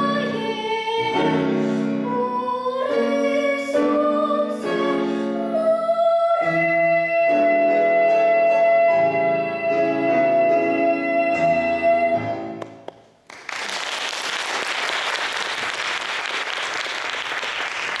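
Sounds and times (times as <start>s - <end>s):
girl singing: 0.0s - 12.5s
piano chords: 0.0s - 12.9s
audience applause: 13.3s - 18.0s.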